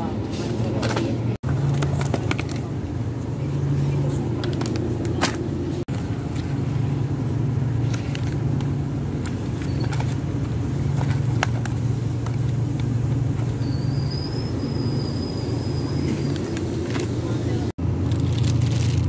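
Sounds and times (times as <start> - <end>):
low hum and rumble: 0.0 - 19.0
packs and cart clicking: 0.6 - 2.8
faint high thin whistle: 13.6 - 16.4.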